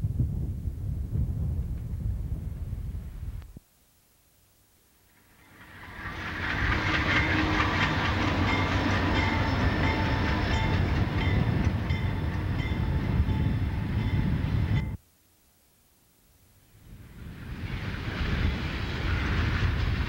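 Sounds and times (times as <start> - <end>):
freight train rumbling and clattering: 5.5 - 15.0, 17.3 - 20.0.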